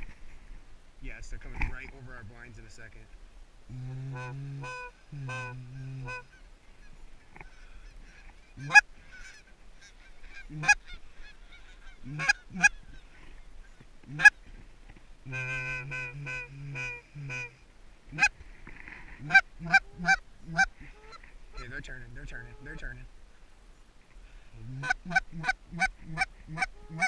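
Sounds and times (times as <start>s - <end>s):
faint geese honking: 1.3s - 27.0s
goose call long low notes: 3.7s - 6.4s, 8.6s - 12.9s, 14.0s - 14.4s, 15.2s - 18.4s, 19.1s - 23.0s, 24.5s - 27.0s
loud sharp goose call clucks: 3.7s - 13.1s, 14.0s - 14.4s, 15.3s - 18.4s, 19.1s - 22.9s, 24.6s - 27.0s.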